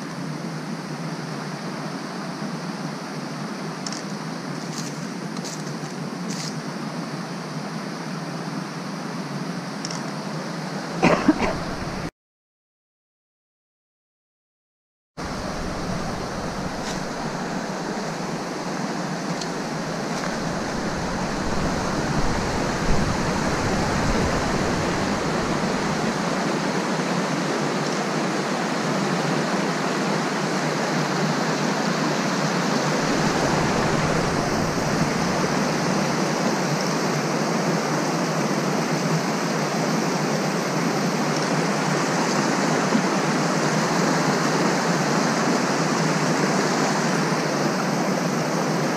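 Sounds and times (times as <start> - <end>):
water rushing over rocks: 11.0 - 12.1, 15.2 - 37.7.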